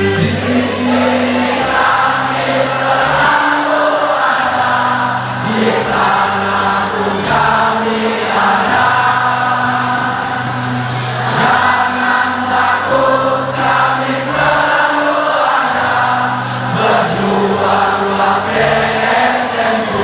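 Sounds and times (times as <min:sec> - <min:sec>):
crowd singing a chant: 0:00.0 - 0:20.0.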